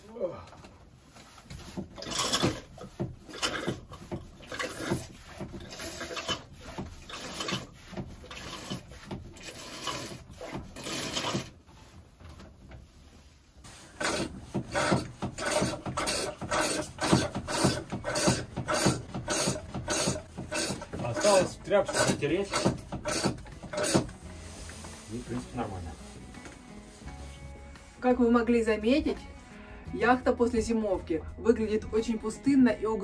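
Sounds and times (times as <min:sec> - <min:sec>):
rasping rub of pump: 0:00.7 - 0:28.1
hand pump strokes: 0:01.0 - 0:11.7, 0:13.7 - 0:25.8.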